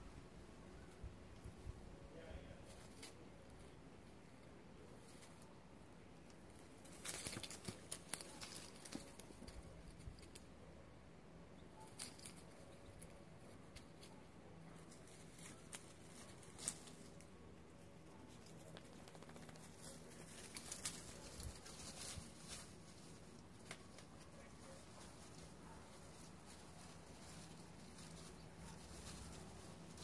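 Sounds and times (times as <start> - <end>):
paws rustling dry leaves: 6.6 - 9.6, 14.8 - 30.0.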